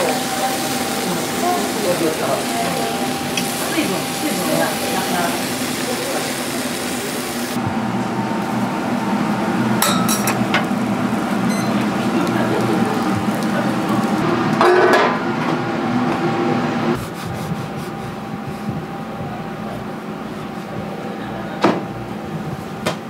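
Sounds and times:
kitchen machinery hum: 0:00.0 - 0:23.0
knocks and clinks: 0:09.8 - 0:10.4.

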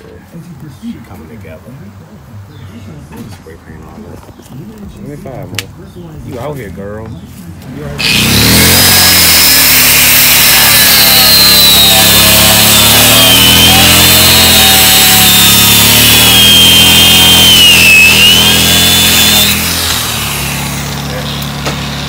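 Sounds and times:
angle grinder cutting steel: 0:08.0 - 0:22.0.

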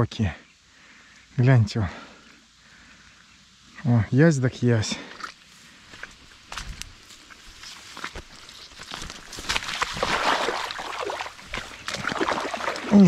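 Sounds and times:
water splashing and sloshing: 0:07.9 - 0:13.0
fish thrashing in a net: 0:09.1 - 0:13.0.

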